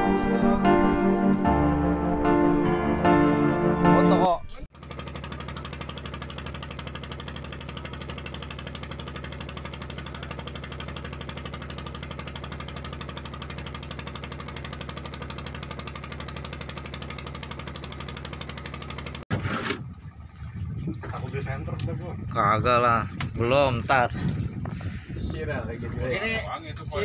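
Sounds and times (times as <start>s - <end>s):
boat engine knocking: 4.7s - 19.2s.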